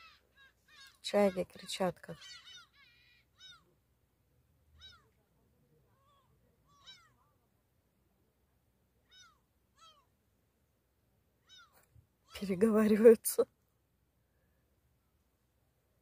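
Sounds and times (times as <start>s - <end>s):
distant gulls calling: 0.0s - 3.8s, 4.7s - 5.2s, 6.0s - 7.4s, 9.0s - 10.1s, 11.4s - 12.5s.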